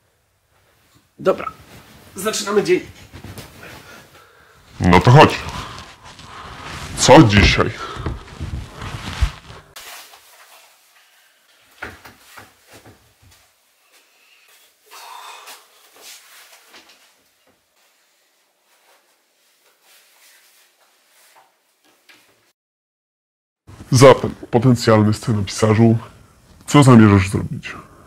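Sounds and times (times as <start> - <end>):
cloth rustling: 1.6 - 10.8.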